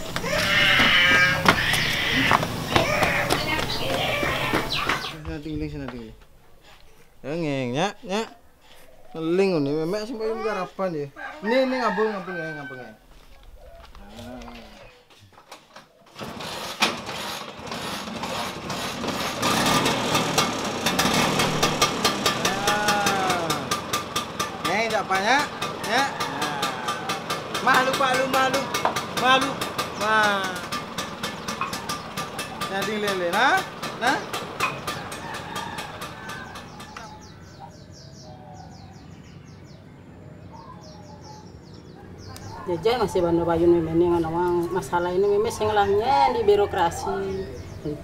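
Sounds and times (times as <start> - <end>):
bird chirping: 2.9 - 11.4, 36.2 - 48.0
small motorcycle engine: 16.1 - 37.3.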